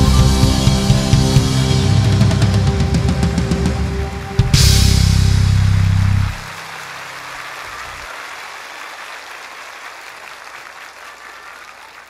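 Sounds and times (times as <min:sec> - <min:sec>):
band's low final note: 0:00.0 - 0:06.6
audience applauding: 0:05.6 - 0:12.0.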